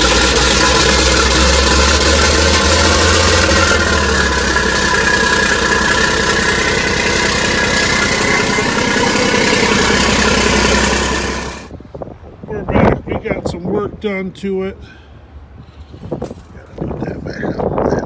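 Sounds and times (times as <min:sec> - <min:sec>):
diesel engine idling loudly: 0:00.0 - 0:11.8.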